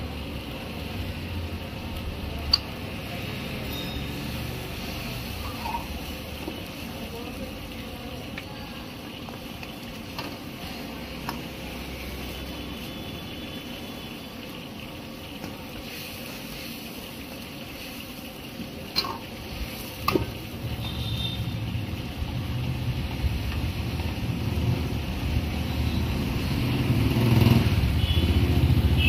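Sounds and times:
soup sizzling in a wok: 0.0s - 29.0s
ladle clanking against wok: 18.9s - 19.4s.

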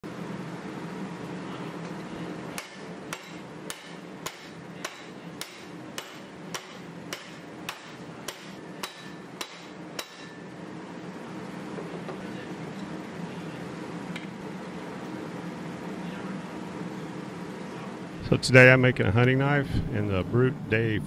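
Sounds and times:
steady low hum: 0.0s - 21.0s
hammer striking hot steel: 2.5s - 10.6s.

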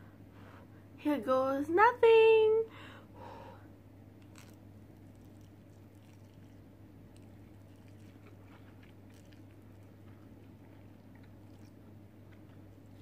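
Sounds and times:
steady low hum: 0.0s - 13.0s
person slurping and chewing noodles: 4.2s - 13.0s.

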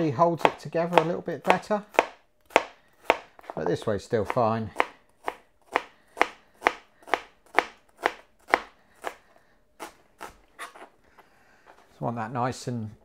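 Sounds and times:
knife chopping on plastic board: 0.4s - 9.2s.

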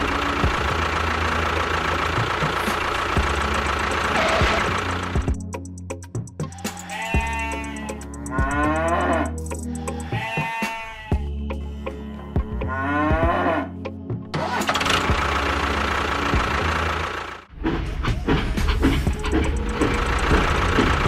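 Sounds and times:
motor running with low pulsing: 0.0s - 5.6s, 19.1s - 21.0s
background music: 0.0s - 21.0s
farm animals mooing and bleating: 4.1s - 4.8s, 6.5s - 11.3s, 12.5s - 13.9s.

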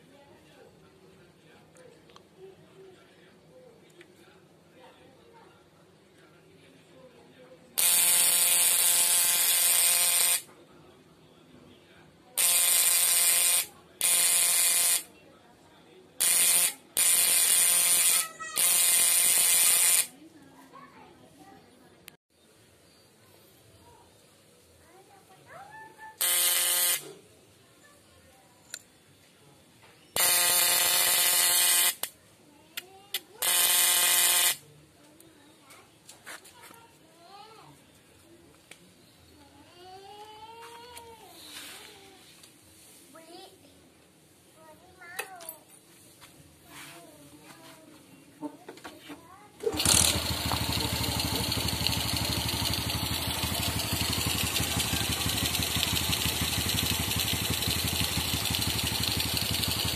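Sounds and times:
electric fish shocker buzzing: 26.2s - 27.0s, 30.2s - 32.0s, 33.4s - 34.6s, 49.7s - 59.9s
electric fish stunner buzzing: 26.2s - 27.0s.

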